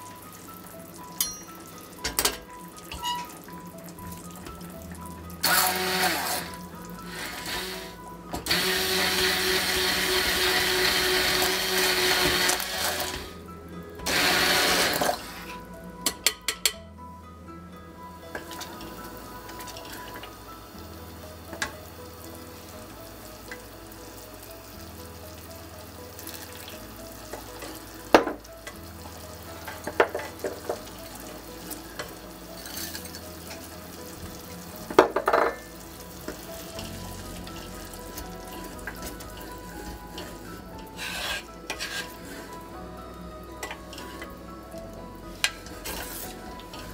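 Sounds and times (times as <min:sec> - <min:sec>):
soft background music: 0:00.0 - 0:46.9
spoon stirring thick soup: 0:40.1 - 0:42.6.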